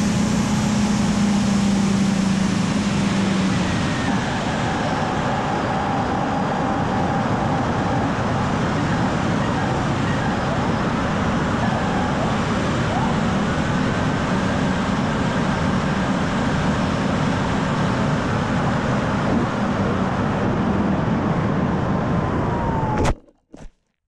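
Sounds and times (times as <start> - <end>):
wind rushing over camera: 2.6 - 23.3.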